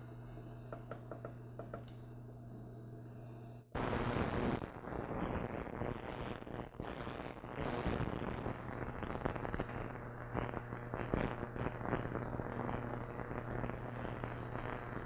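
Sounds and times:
ultrasonic cleaner hum: 0.0 - 15.0
crackling hiss from water: 3.8 - 15.0.

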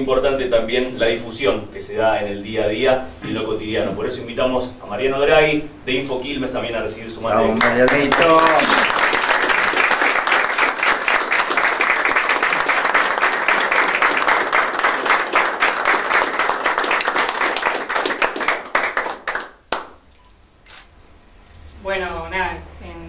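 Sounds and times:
audience applauding: 7.5 - 20.0.

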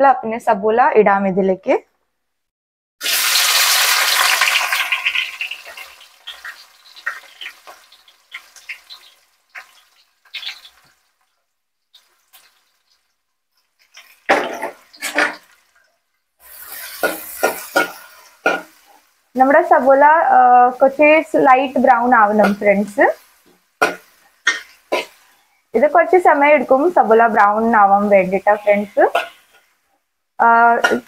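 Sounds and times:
oil crackling: 3.0 - 19.6
onions sizzling in hot oil: 3.0 - 31.0
stirring scrapes in a pot: 16.4 - 19.1, 22.4 - 25.5, 29.0 - 29.9.

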